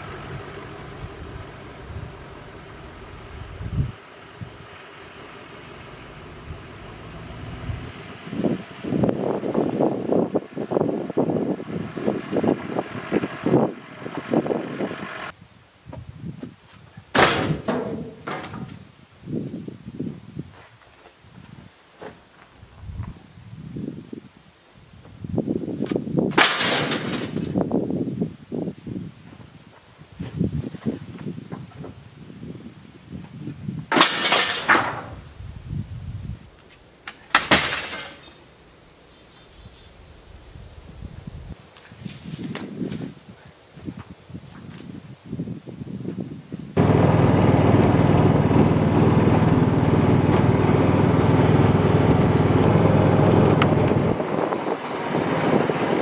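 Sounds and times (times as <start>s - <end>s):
insects chirping: 0.0s - 17.2s, 17.8s - 26.4s, 27.1s - 46.8s
debris crashing and clattering: 17.2s - 18.8s, 26.4s - 27.6s, 33.9s - 35.2s, 37.3s - 38.4s.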